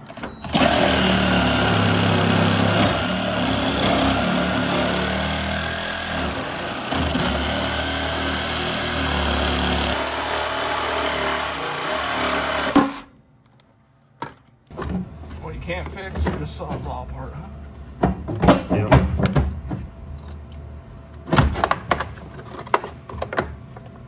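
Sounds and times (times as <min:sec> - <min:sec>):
reciprocating saw cutting plastic: 0:00.5 - 0:13.1.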